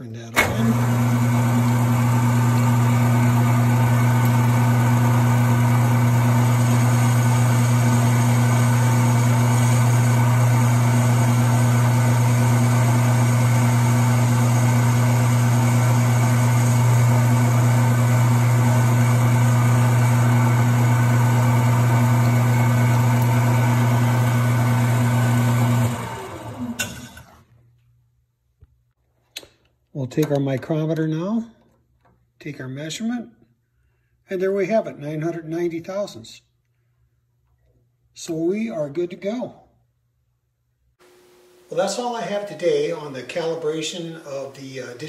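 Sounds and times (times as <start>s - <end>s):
metal lathe motor hum: 0.4s - 27.4s.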